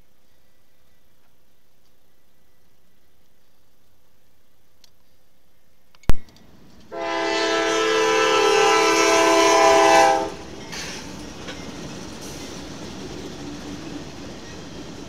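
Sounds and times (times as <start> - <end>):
sharp click: 5.9 - 6.4
train rolling: 6.3 - 15.0
locomotive air horn: 6.9 - 10.5.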